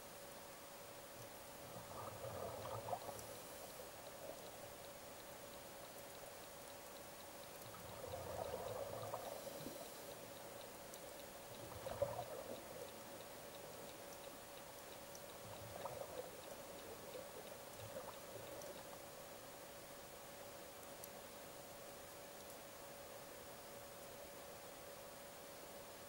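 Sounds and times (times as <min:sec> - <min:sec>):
faint steady hum: 0:00.0 - 0:26.0
water bubbling and gurgling: 0:01.6 - 0:04.7, 0:07.6 - 0:10.0, 0:11.4 - 0:14.2, 0:15.2 - 0:19.2.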